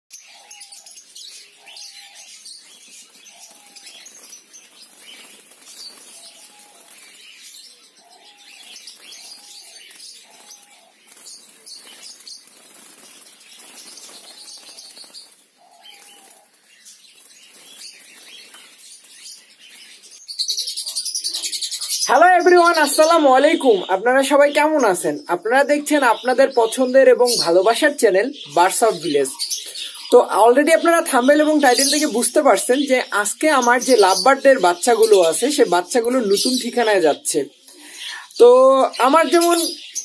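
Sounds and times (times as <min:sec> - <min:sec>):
lovebirds chirping and chattering: 0:00.1 - 0:40.0
wings fluttering against cage: 0:02.6 - 0:07.5, 0:08.2 - 0:20.1.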